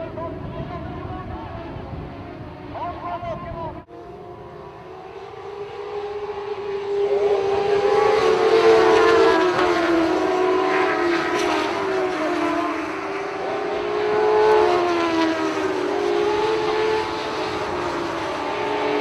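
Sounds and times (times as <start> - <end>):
race car engines revving past: 3.8 - 19.0.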